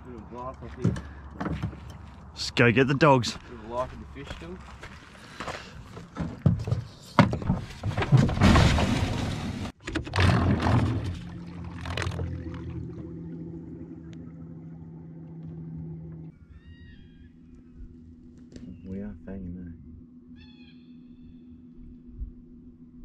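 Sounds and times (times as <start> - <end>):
water splashing: 8.5 - 16.2
electric outboard motor humming: 10.0 - 18.6.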